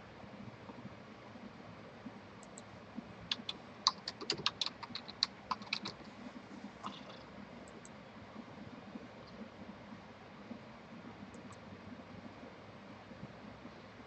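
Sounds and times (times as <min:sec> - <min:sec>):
typing on a computer keyboard: 0:03.3 - 0:06.0.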